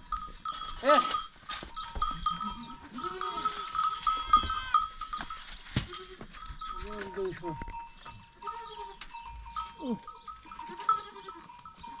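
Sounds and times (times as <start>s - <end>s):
goats bleating: 2.0s - 5.0s, 9.8s - 12.0s.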